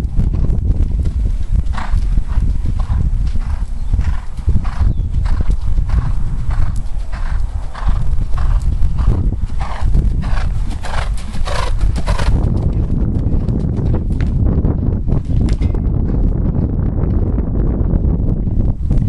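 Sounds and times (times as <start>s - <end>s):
horse cantering: 0.0s - 17.8s
steady low rumble: 0.0s - 19.0s.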